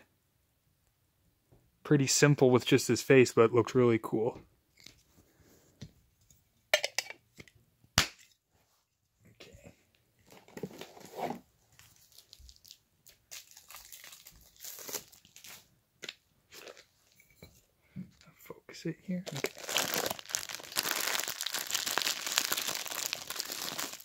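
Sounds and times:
plastic packaging crinkling: 11.7s - 15.7s, 19.2s - 24.0s.

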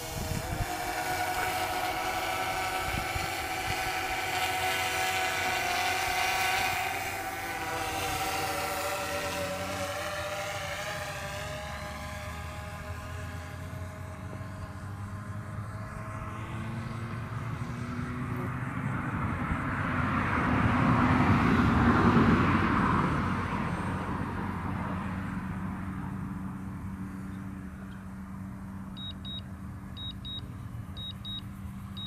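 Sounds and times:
vehicle passing by: 0.0s - 32.0s
controller beeping in pairs: 29.0s - 29.4s, 30.0s - 30.4s, 31.0s - 32.0s.

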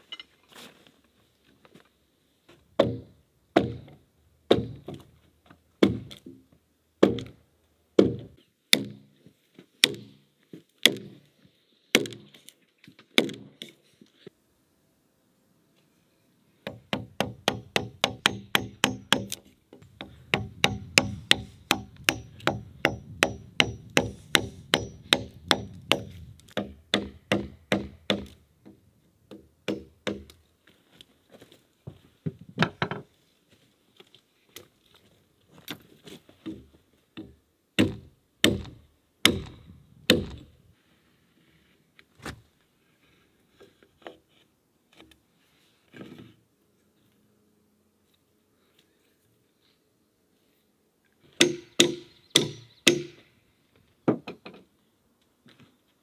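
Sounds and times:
axe chopping log: 2.8s - 3.9s, 4.5s - 5.0s, 5.8s - 6.3s, 7.0s - 7.4s, 8.0s - 9.1s, 9.8s - 10.2s, 10.8s - 11.1s, 20.3s - 28.4s, 37.8s - 40.4s, 51.4s - 53.2s
chisel strikes on wood: 16.7s - 19.4s, 20.0s - 28.3s, 51.4s - 53.2s.

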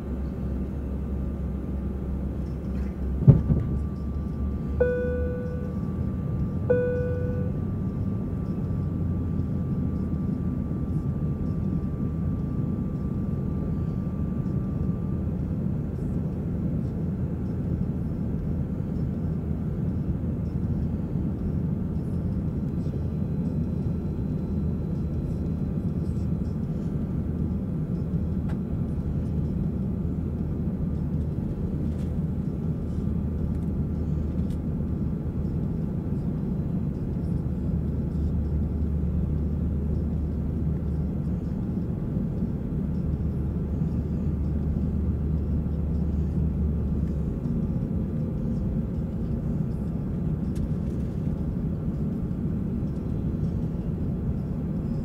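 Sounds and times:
deep hum: 0.0s - 15.4s
airliner cabin engine rumble: 0.0s - 55.0s.

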